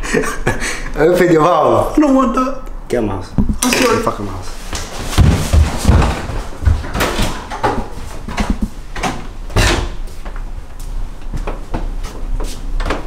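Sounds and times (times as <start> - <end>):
footsteps in hallway: 4.6 - 13.0.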